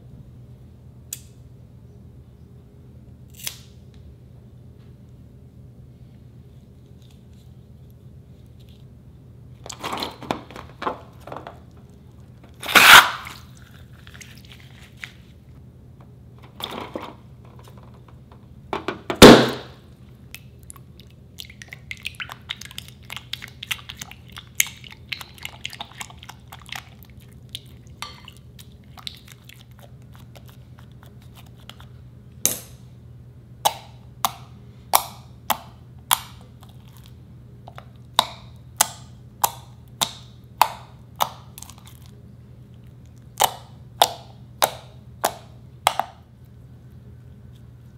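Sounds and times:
spatula stirring wet slime: 12.8 - 15.4, 20.3 - 32.0, 35.5 - 38.0
fingers popping sticky slime: 43.4 - 46.1.

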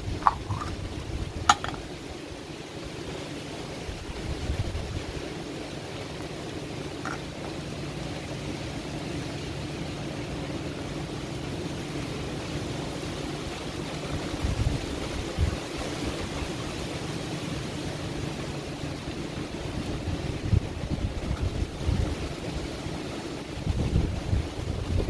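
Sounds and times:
wind gusts buffeting microphone: 0.0 - 2.4, 3.1 - 8.6, 12.2 - 17.0, 18.9 - 25.0
heavy rain: 0.0 - 25.0.

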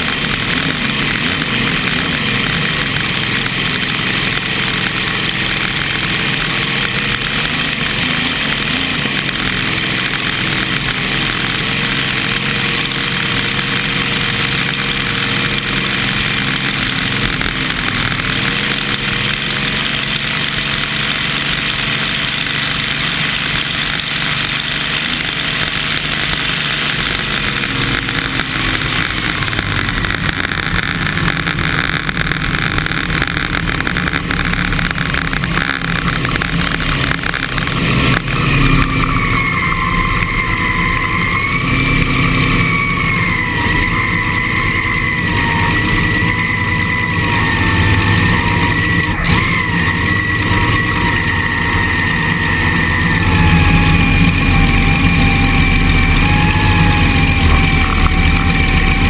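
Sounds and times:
boat engine running at speed: 0.0 - 59.0
water spray hissing: 0.1 - 42.9.

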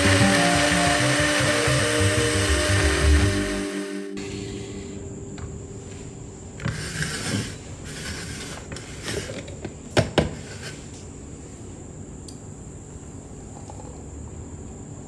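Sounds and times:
glass jar rustling and scraping on wood: 6.6 - 9.4.

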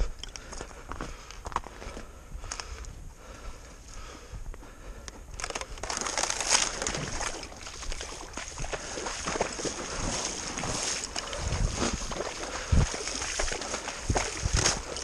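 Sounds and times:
wading through shallow water: 5.2 - 15.0.

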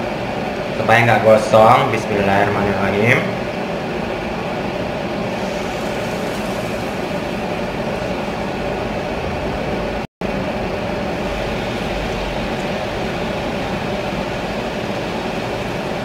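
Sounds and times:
extractor fan rushing: 0.0 - 16.0
oil frying in a pan: 4.0 - 16.0.

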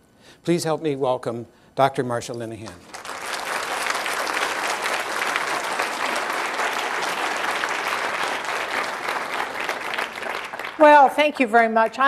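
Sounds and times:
audience applauding: 2.7 - 11.2.

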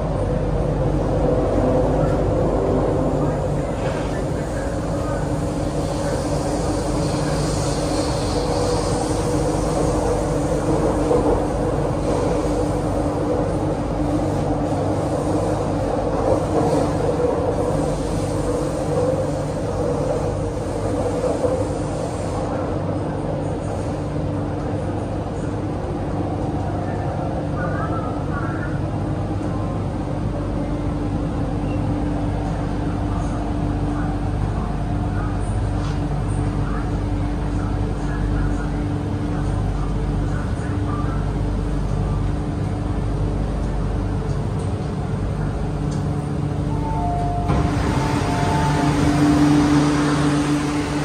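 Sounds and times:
train cabin rumble: 0.0 - 51.0
steady hum: 32.9 - 51.0.

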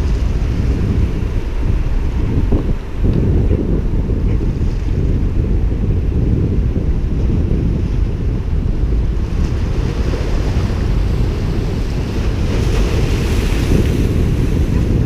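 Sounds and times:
wind buffeting microphone: 0.0 - 15.0
waves splashing against rocks: 9.2 - 15.0.

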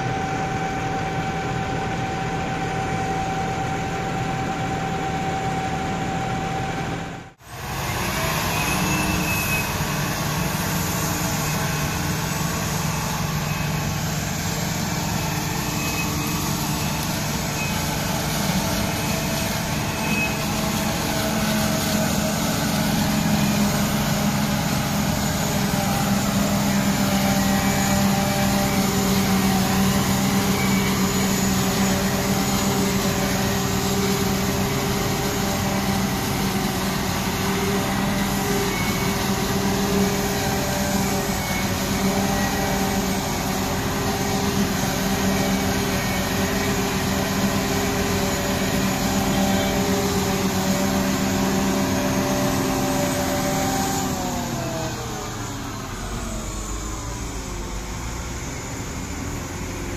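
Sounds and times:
forage harvester engine droning: 0.0 - 59.9.

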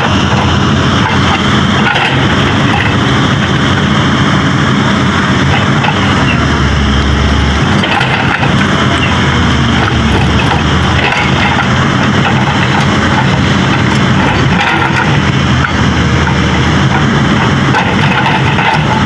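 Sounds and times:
hydraulic breaker hammering rock: 0.0 - 3.2, 7.6 - 19.0
diesel engine running: 0.0 - 19.0.

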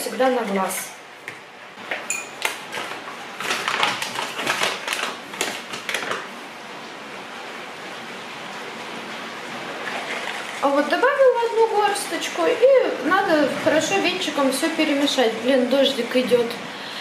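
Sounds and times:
paper bag crinkling: 2.4 - 6.4
rain hissing: 4.7 - 17.0.

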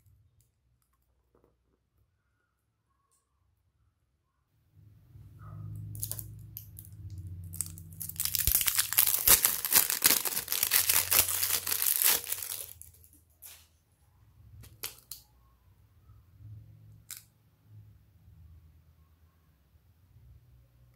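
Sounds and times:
plastic wrapping crinkling: 6.0 - 13.6, 14.6 - 15.2.

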